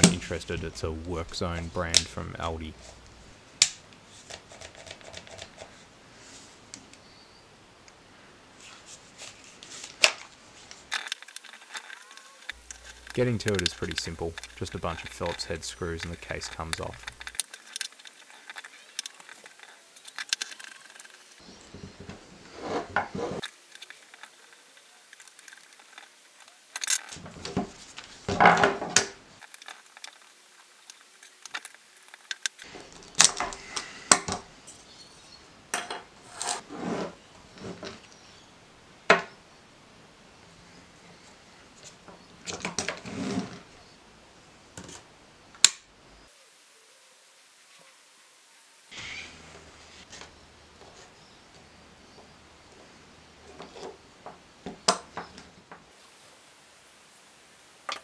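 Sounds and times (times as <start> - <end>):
low background hum: 12.5 - 17.5.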